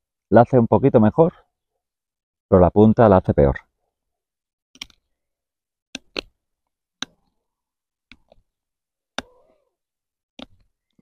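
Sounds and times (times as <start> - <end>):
knife carving wooden stick: 5.9 - 6.4.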